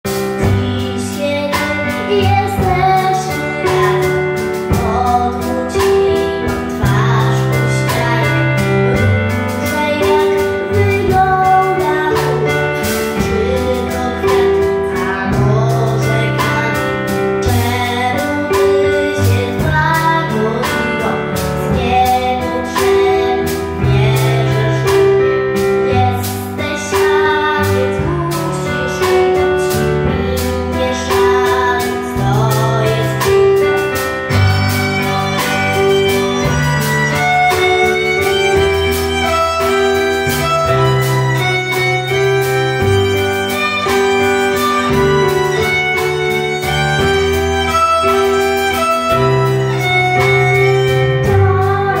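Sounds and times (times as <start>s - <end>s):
drum kit beat: 0.0s - 52.0s
keyboard: 0.0s - 52.0s
violin melody: 0.0s - 52.0s
girl singing: 0.1s - 52.0s.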